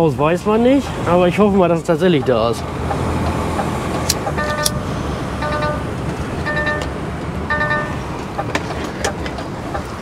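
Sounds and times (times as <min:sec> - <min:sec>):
diesel engine running: 0:00.0 - 0:10.0
warning tone beeping: 0:02.2 - 0:08.1.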